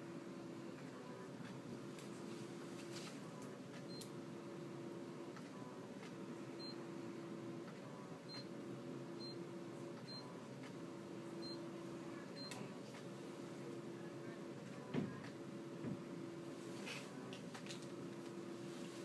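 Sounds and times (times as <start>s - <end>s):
high key-press beeps: 6.6s - 6.8s, 8.3s - 8.5s, 9.2s - 9.4s, 10.0s - 10.4s, 11.4s - 11.6s.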